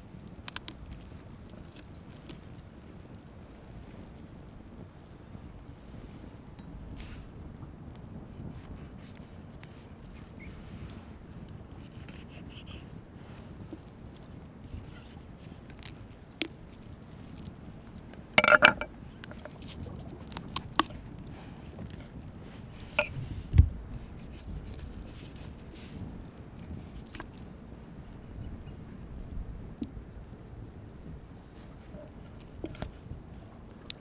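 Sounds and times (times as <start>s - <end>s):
skin tearing and crackling: 0.4s - 2.7s, 14.7s - 18.4s, 19.1s - 21.3s, 24.0s - 25.7s.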